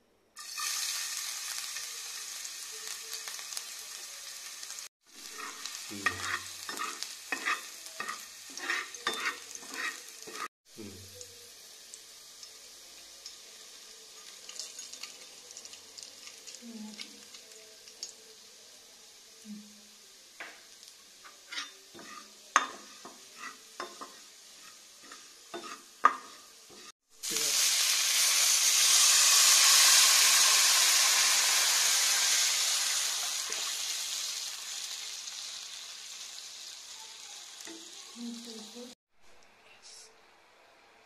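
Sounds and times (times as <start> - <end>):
loud sizzle of liquid in oil: 0.4 - 10.5, 11.1 - 39.0
garlic frying in oil: 0.4 - 39.0
spatula scraping a pan: 5.2 - 10.5, 21.2 - 27.0.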